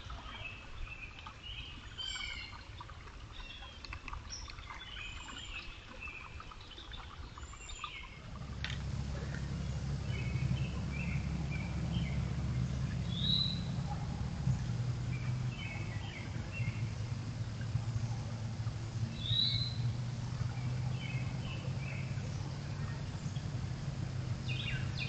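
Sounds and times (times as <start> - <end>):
birds chirping: 4.3 - 25.0
low rumble: 8.1 - 25.0.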